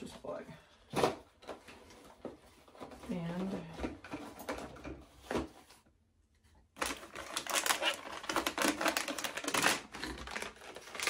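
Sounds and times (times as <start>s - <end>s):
plastic containers rattling: 6.8s - 11.0s.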